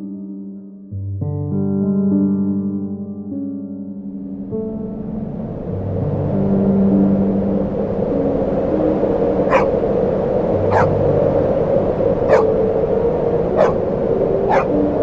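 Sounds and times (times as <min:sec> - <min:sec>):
soft background music: 0:00.0 - 0:15.0
dog barking: 0:09.5 - 0:09.7, 0:10.7 - 0:11.0, 0:12.3 - 0:12.5, 0:13.6 - 0:13.8, 0:14.5 - 0:14.7.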